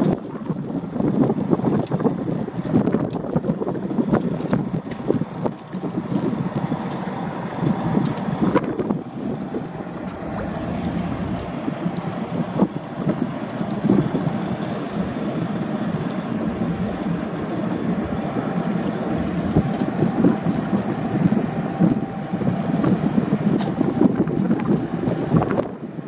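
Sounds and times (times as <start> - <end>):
wind buffeting microphone: 0.0 - 26.0
faint steady hum: 5.8 - 24.1.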